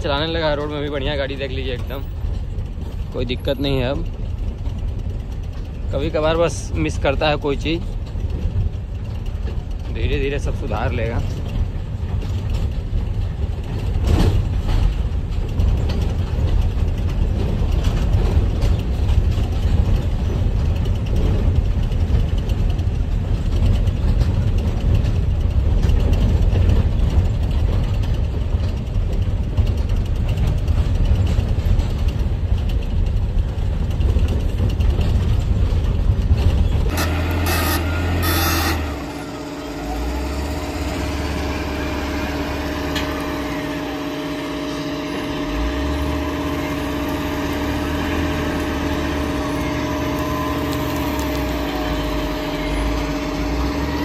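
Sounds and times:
diesel truck engine rumble: 0.0s - 54.0s
humming tone: 36.9s - 54.0s.

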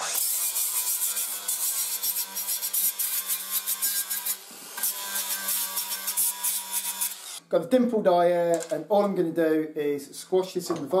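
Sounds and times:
angle grinder grinding metal: 0.0s - 7.4s.

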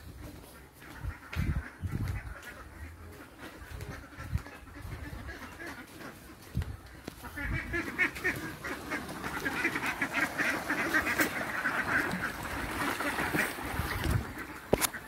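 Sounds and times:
ducks quacking: 0.0s - 15.0s.

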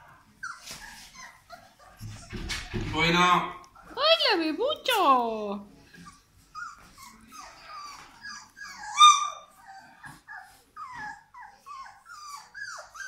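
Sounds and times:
puppies whining and yipping: 0.4s - 2.7s, 6.0s - 13.0s
puppy yelp: 6.1s - 13.0s.

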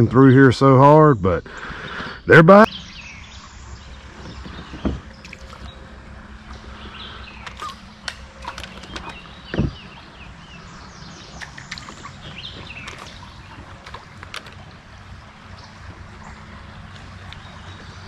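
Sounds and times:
small birds chirping: 1.4s - 18.0s
river current washing: 1.6s - 18.0s
dull thumps on kayak: 4.1s - 5.7s, 7.5s - 10.0s
light clicks: 11.3s - 14.6s.

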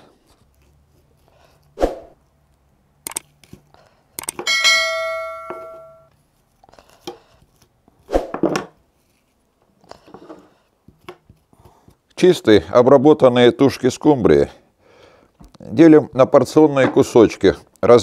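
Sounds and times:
bright bell ding: 4.5s - 6.1s.

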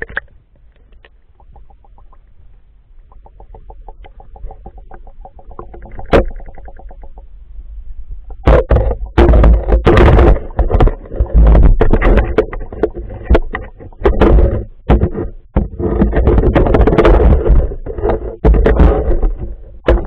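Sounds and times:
water buffeting camera: 0.0s - 7.4s, 8.2s - 20.0s
muffled underwater rumbling: 0.0s - 20.0s
knocking on gravel underwater: 8.3s - 17.6s.

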